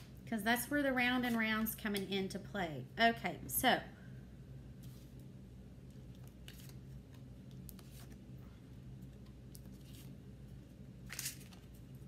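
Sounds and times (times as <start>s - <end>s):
cards being shuffled: 6.2s - 8.2s, 9.5s - 10.2s, 11.0s - 11.8s.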